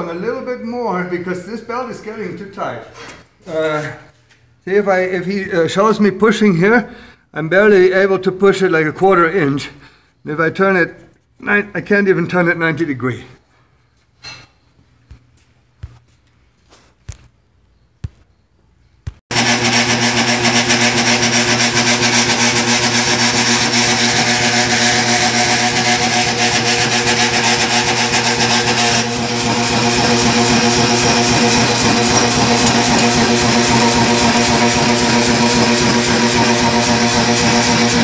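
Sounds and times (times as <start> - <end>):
power hammer mechanical drone: 19.3 - 38.0.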